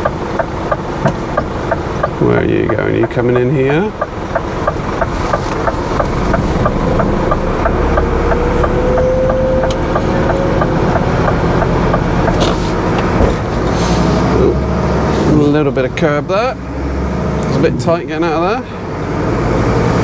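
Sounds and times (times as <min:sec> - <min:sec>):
light even ticking: 0:00.0 - 0:12.4
diesel engine running: 0:00.0 - 0:20.0
faint whine: 0:05.8 - 0:10.6.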